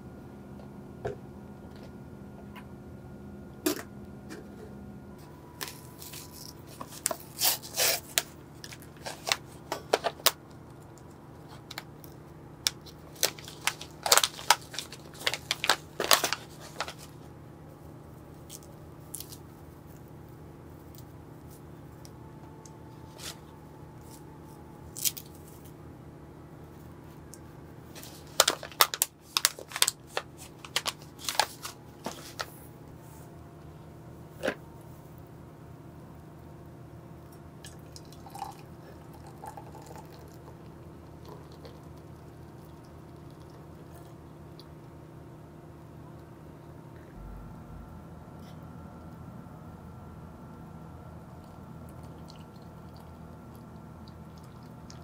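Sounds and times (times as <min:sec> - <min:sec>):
paper pouch crinkling: 0:12.7 - 0:17.2, 0:27.9 - 0:32.5.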